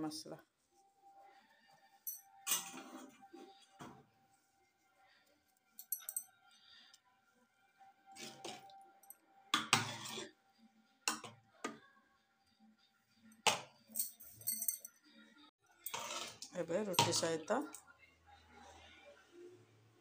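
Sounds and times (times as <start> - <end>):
metal ladle scraping a pot: 2.4 - 3.6, 8.1 - 8.7, 9.6 - 10.4, 15.8 - 17.2.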